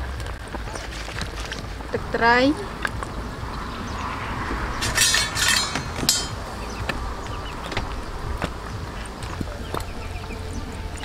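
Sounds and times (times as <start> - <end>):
steady low rumble: 0.0 - 11.0
metal ladle scraping pot: 4.8 - 6.4.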